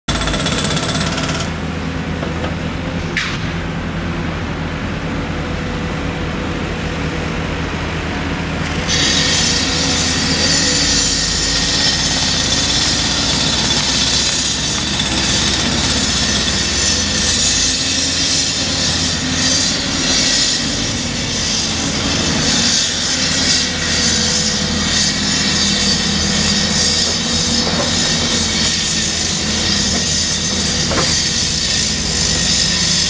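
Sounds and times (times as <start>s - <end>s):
diesel engine under load: 0.1s - 33.0s
hydraulic whine: 5.8s - 33.0s.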